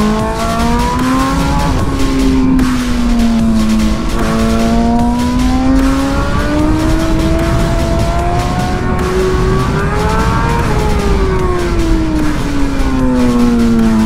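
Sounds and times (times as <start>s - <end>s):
motorcycle engine accelerating: 0.0s - 14.0s.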